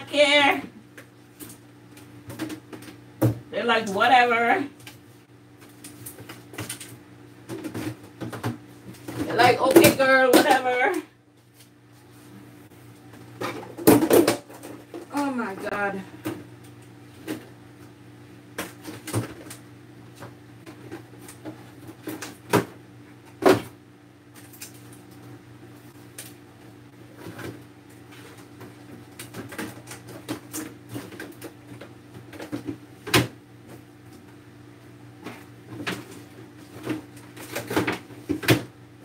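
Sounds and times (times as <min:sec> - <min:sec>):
containers knocking and clunking: 0:13.3 - 0:15.2.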